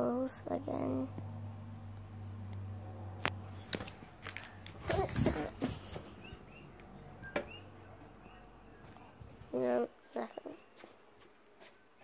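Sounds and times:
handling clicks and rustles: 3.2s - 7.6s.

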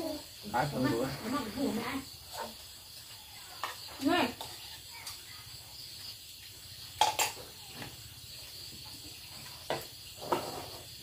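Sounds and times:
crickets chirring: 0.0s - 11.0s
spoons clattering against dishes: 7.0s - 7.5s.

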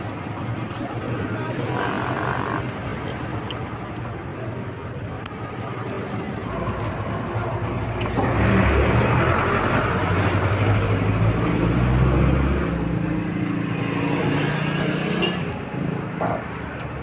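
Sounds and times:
vehicle engine running: 0.0s - 11.4s.

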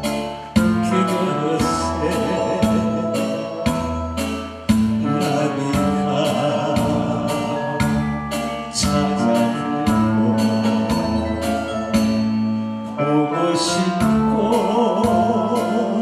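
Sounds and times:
amplified backing music with beat: 0.0s - 16.0s
man singing into microphone: 0.6s - 4.0s, 5.0s - 8.0s, 8.6s - 11.8s, 12.9s - 16.0s.

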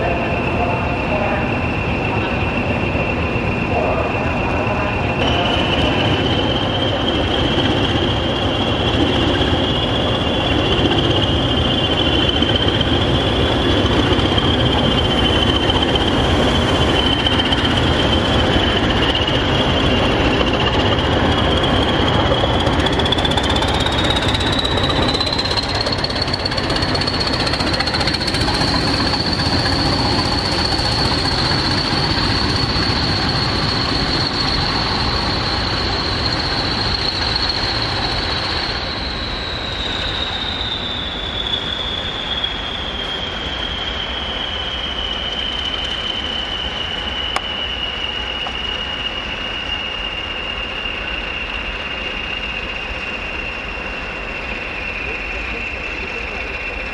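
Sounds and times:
locomotive engines clattering: 0.0s - 44.0s
turbocharger whistle: 0.1s - 56.9s.

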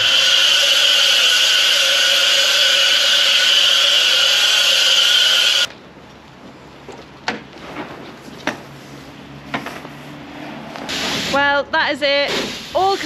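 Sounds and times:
pressure washer spraying water: 0.0s - 5.7s, 10.9s - 11.6s.

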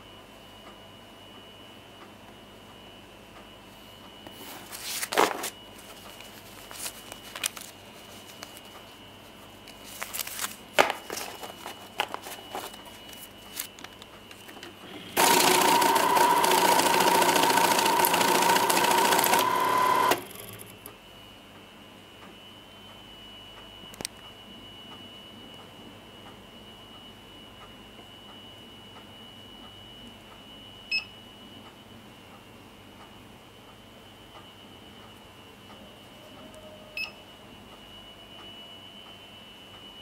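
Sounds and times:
clicks and handling noises: 9.6s - 14.8s
banknote counter whirring: 14.3s - 20.9s.

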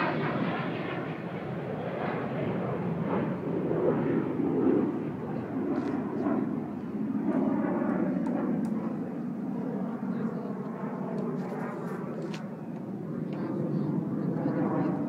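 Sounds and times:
jet engines rumbling: 0.0s - 15.0s.

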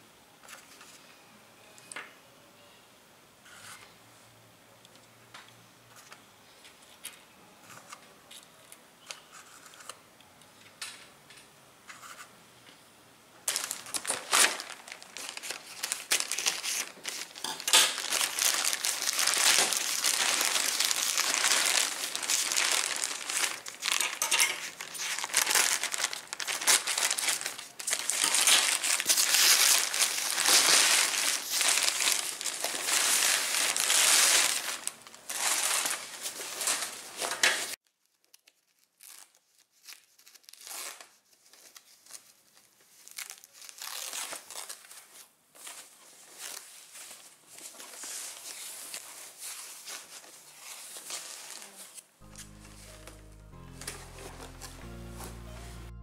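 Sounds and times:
plastic bag crinkling: 13.4s - 54.9s.

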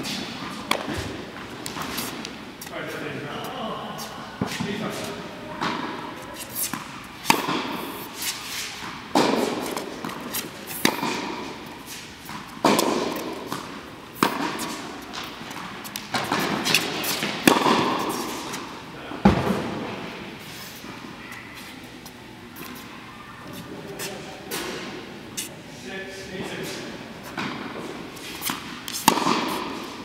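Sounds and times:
tennis ball bouncing: 0.0s - 2.7s, 5.6s - 19.6s, 27.3s - 30.0s
tennis racket hitting ball: 0.0s - 2.7s, 4.4s - 19.6s, 26.6s - 30.0s.

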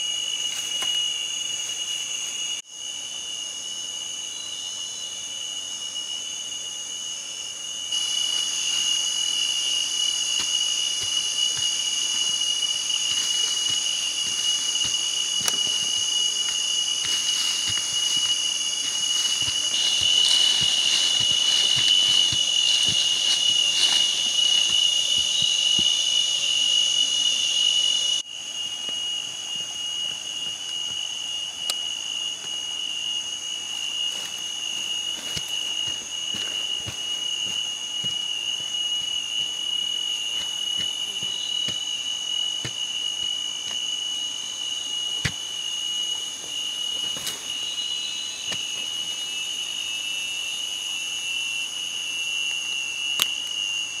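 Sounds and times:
insects droning: 0.0s - 54.0s
digging in loose soil: 0.1s - 2.6s, 7.9s - 43.9s, 46.9s - 49.2s.

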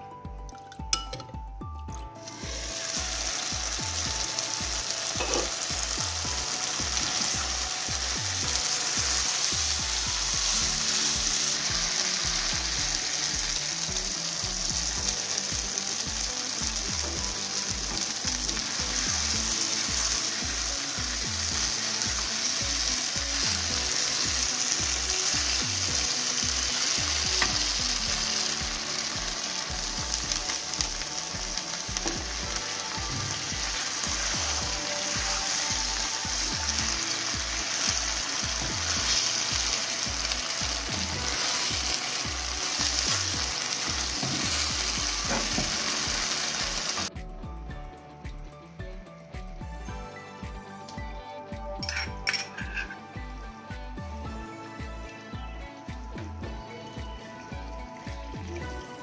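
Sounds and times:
chicken sizzling in a wok: 2.2s - 47.1s, 51.8s - 53.0s.

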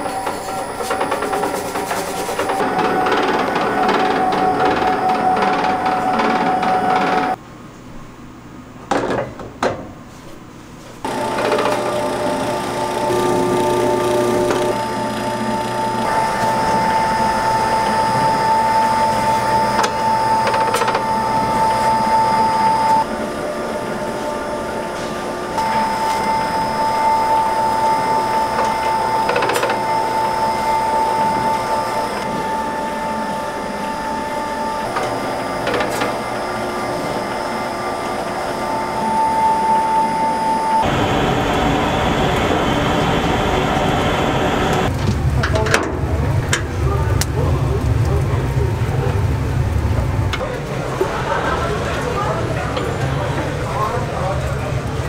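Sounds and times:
noodle cutting machine motor whine: 0.0s - 7.4s, 11.0s - 45.0s.

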